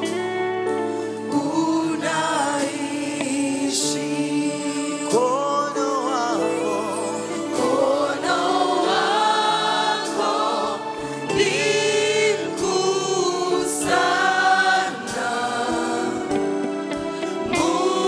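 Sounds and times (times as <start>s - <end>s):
women singing gospel in harmony: 7.6s - 16.6s, 17.3s - 18.0s.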